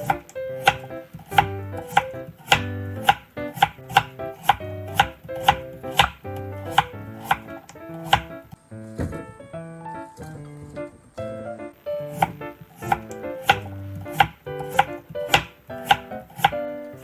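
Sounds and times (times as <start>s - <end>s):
knife slicing on wooden board: 0.0s - 8.3s, 12.0s - 16.6s
light background music: 0.0s - 17.0s.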